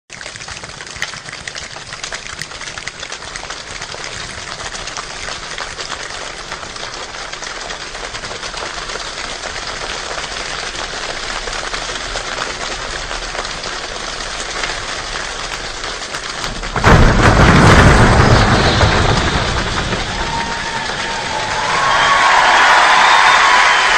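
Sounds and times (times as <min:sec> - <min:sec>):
snapping and slapping body percussion: 0:00.1 - 0:17.1.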